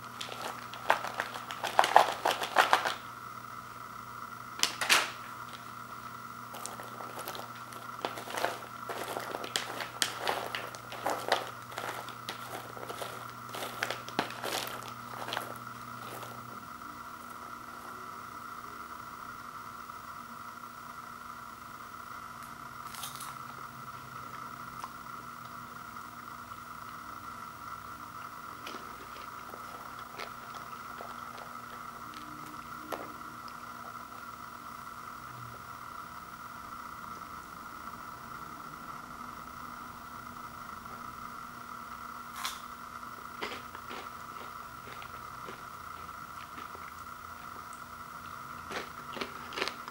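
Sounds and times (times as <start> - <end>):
popcorn clicking in plastic bowl: 0.0 - 3.1, 4.6 - 5.7, 6.6 - 16.5
popcorn crunch: 0.0 - 3.5, 4.4 - 18.2, 22.8 - 23.6, 26.2 - 35.3, 42.4 - 49.9
steady background hum: 0.0 - 49.9.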